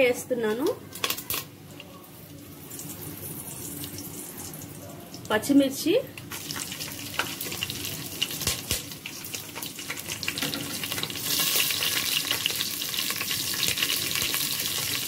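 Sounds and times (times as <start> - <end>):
oil crackles: 0.9 - 5.3, 6.2 - 15.0
spices sizzling in hot oil: 2.4 - 15.0.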